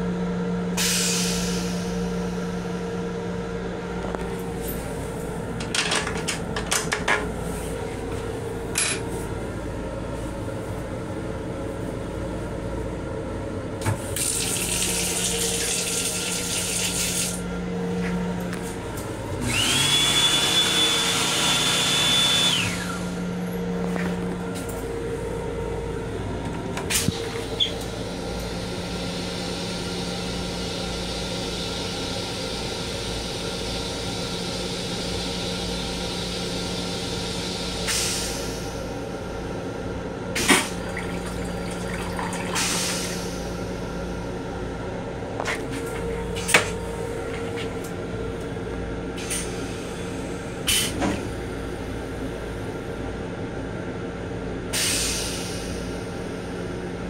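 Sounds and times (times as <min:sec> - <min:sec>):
toilet rinse water hissing: 0:14.0 - 0:17.4, 0:40.4 - 0:43.6
machine whine: 0:14.2 - 0:39.3
steady hum: 0:22.6 - 0:35.0, 0:38.5 - 0:50.7.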